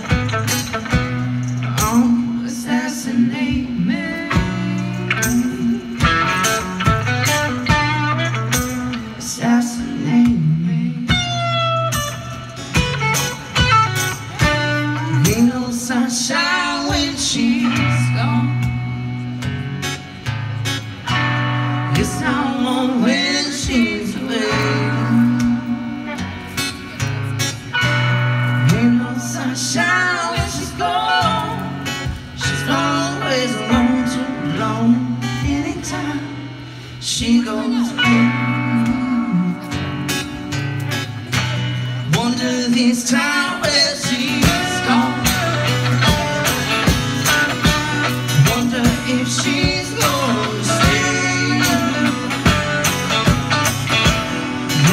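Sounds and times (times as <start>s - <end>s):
electric guitar: 0.0s - 54.9s
strummed acoustic guitar: 0.0s - 54.9s
person singing: 21.6s - 26.2s, 42.1s - 54.9s.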